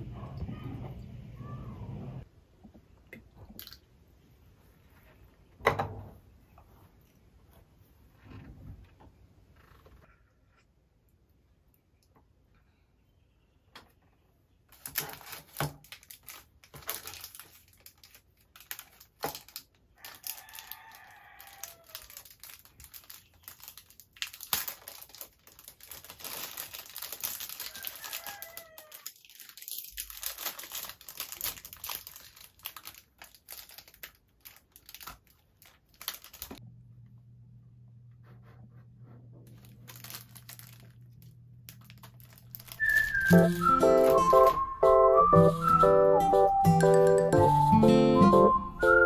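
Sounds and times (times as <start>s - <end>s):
material crinkling and rustling: 14.7s - 36.6s, 38.8s - 44.6s.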